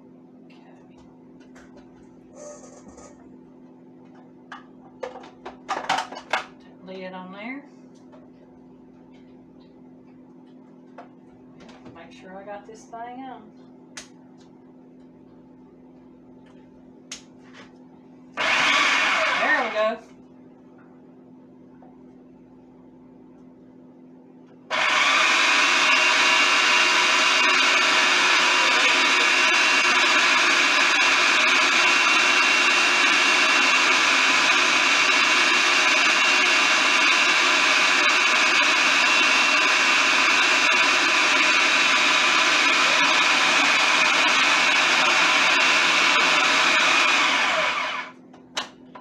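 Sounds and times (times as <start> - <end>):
food processor motor whining: 18.4 - 19.9, 24.7 - 48.2.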